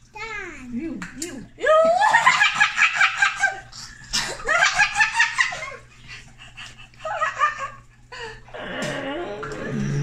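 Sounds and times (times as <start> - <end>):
children laughing: 2.0 - 7.9.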